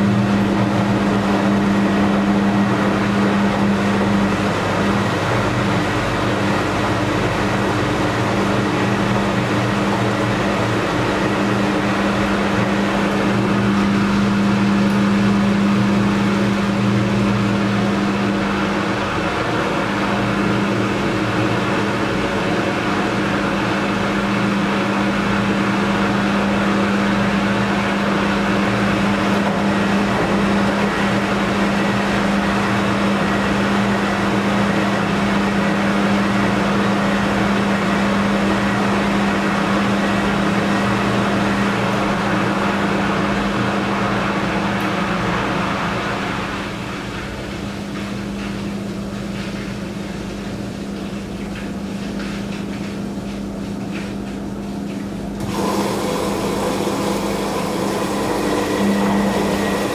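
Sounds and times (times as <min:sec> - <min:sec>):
washing machine drum spinning: 0:00.0 - 0:59.9.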